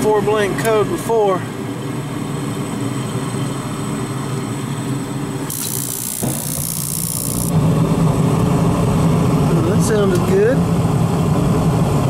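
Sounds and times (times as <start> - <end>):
gas furnace humming: 0.0 - 12.0
sharp click: 5.5 - 7.5.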